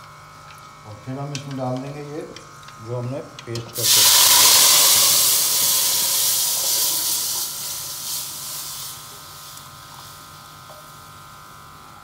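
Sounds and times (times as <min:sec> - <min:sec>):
hot oil sizzling: 0:03.8 - 0:11.1.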